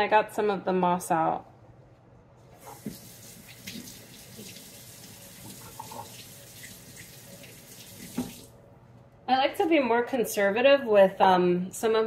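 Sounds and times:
tap water splashing into sink: 2.7s - 8.5s.

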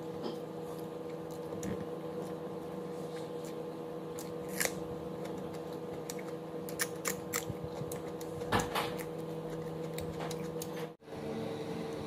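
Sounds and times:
steady hum: 0.0s - 12.0s
fingers picking at food: 3.1s - 10.8s.

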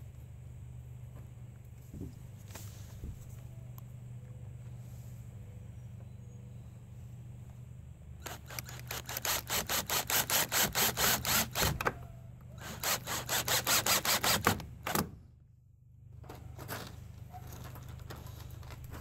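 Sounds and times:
cordless drill driving screws: 8.2s - 11.9s, 12.6s - 15.0s.

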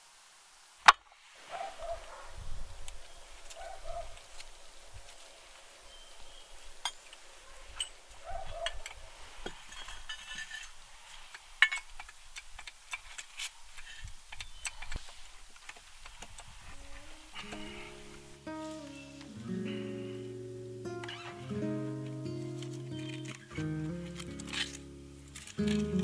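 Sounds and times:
metal clicks and clanks of jack: 22.6s - 26.0s.

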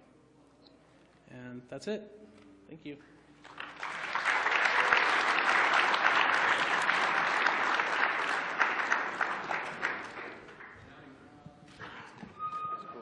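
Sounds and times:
audience applauding: 3.4s - 10.8s.

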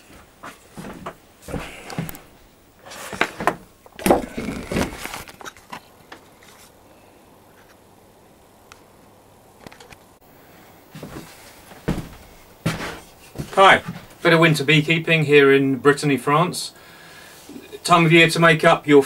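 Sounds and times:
wooden frame knocks and clatters: 11.8s - 14.1s.

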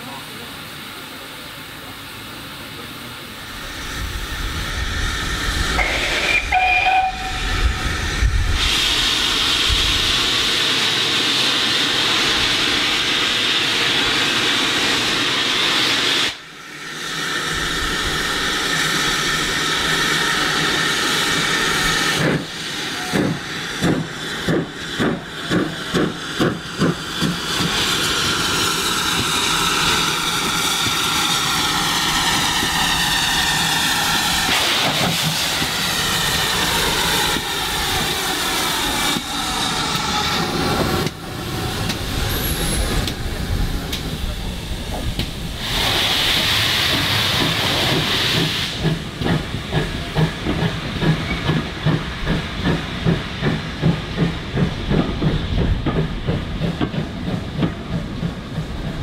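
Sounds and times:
steam hissing: 0.0s - 59.0s
steam locomotive whistle: 5.8s - 7.6s.

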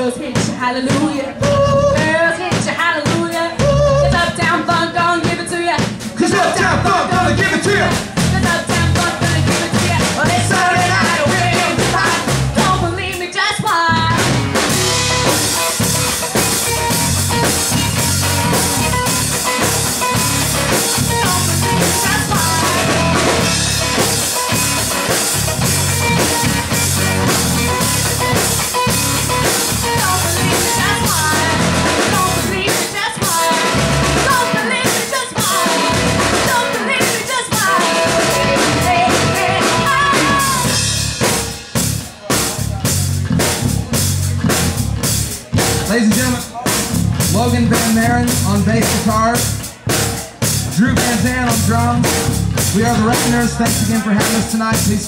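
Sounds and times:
woman singing into microphone: 0.0s - 6.1s, 7.8s - 14.4s, 21.1s - 23.4s, 29.8s - 40.8s
bass guitar: 0.0s - 55.0s
drum kit: 0.0s - 55.0s
electric guitar: 5.9s - 42.1s.

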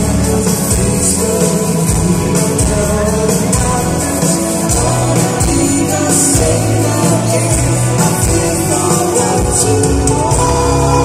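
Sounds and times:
electric guitar: 0.0s - 11.0s
held bass notes: 0.0s - 11.0s
keyboards: 0.0s - 11.0s
man singing: 0.0s - 11.0s.

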